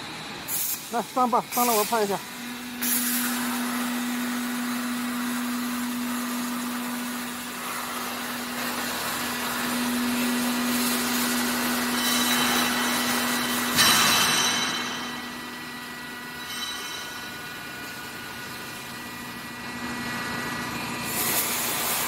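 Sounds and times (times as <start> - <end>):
machine hum: 0.0 - 22.0
hiss: 0.5 - 2.2, 21.0 - 22.0.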